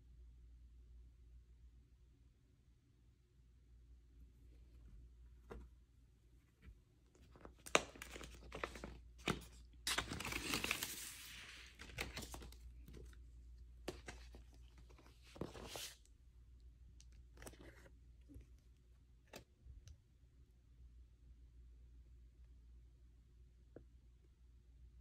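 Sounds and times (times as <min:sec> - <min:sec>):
paper rustling and crinkling: 0:06.6 - 0:16.1.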